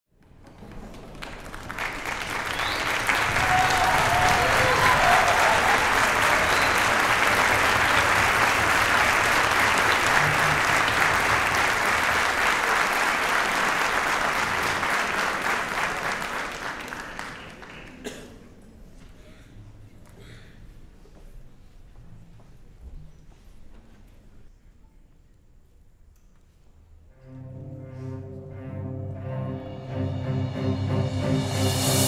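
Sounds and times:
audience applauding: 0.3 - 18.3.

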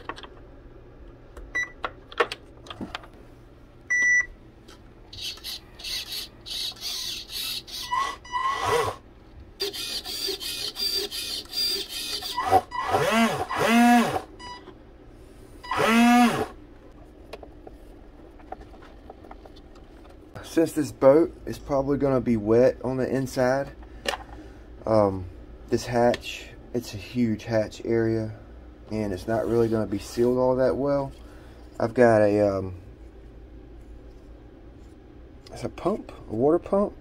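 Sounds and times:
electric motor whirring and revving: 5.2 - 9.0, 9.6 - 14.3, 15.7 - 16.6.

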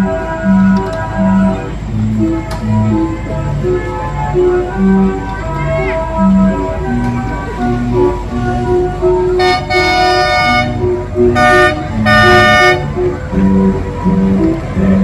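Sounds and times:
background music: 0.0 - 15.0
miniature train horn blasts: 9.4 - 12.9.

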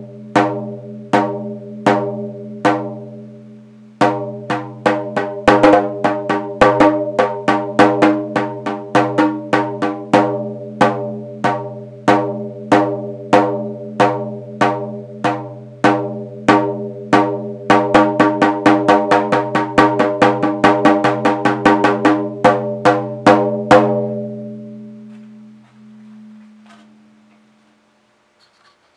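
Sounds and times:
drum strokes: 4.0 - 24.2.

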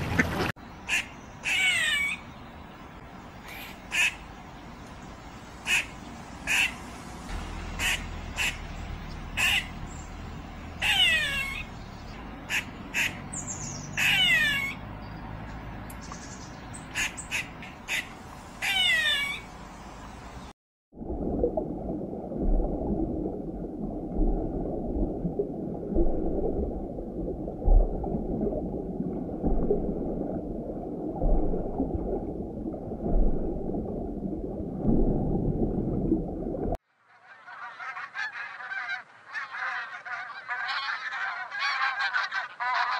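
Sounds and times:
rushing underwater noise: 0.0 - 0.6, 5.6 - 14.9, 20.9 - 36.8
swans calling: 0.0 - 2.3, 5.6 - 11.8, 12.4 - 14.8, 16.9 - 19.5, 37.2 - 42.9
high downward-sweeping calls: 5.6 - 15.2, 16.0 - 20.0
low underwater thuds: 21.0 - 36.8.

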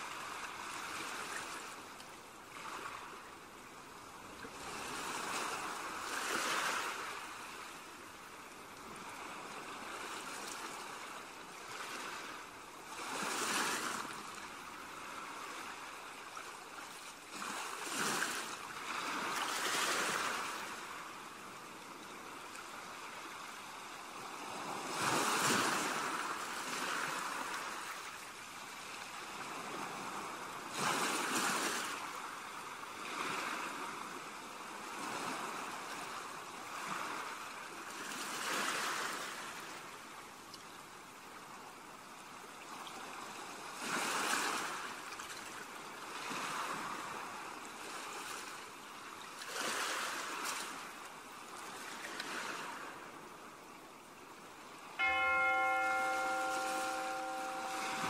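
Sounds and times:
sea waves washing onto shore: 4.0 - 40.1, 54.7 - 58.0.

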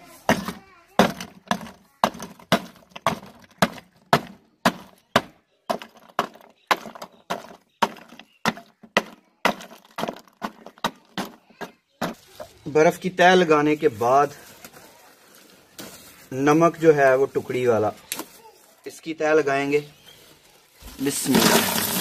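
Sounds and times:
pole pounding ice in metal tin: 0.3 - 5.0, 21.0 - 22.0.

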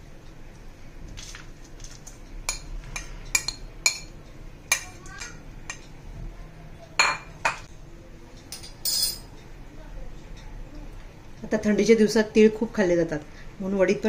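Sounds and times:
metal spoon clinking on bowls: 2.5 - 5.9, 7.0 - 7.7, 8.5 - 9.3.

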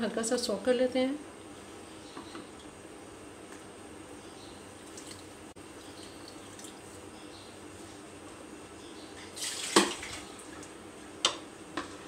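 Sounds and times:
water dripping: 4.8 - 6.9.

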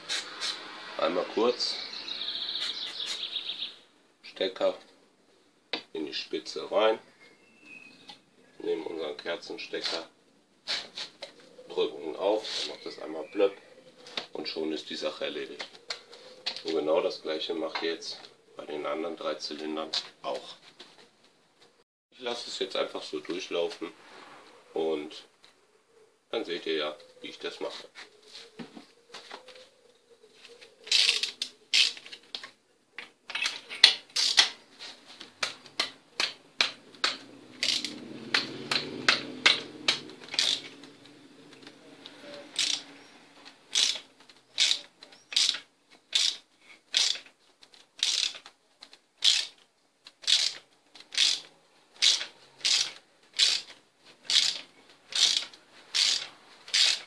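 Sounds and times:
socket ratchet clicking: 33.8 - 34.6, 35.4 - 40.9, 42.5 - 42.9, 43.7 - 47.3, 48.0 - 48.5, 49.2 - 49.6, 50.2 - 57.0.

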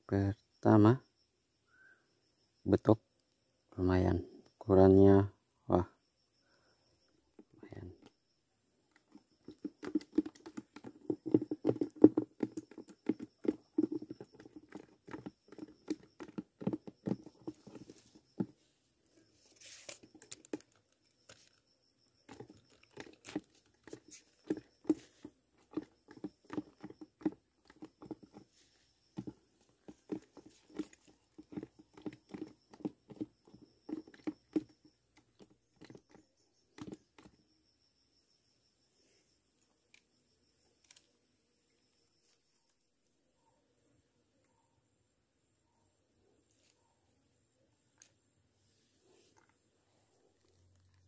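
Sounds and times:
hands handling fish and tackle: 8.9 - 36.2
rustling and crinkling: 8.9 - 37.4, 48.7 - 51.0.

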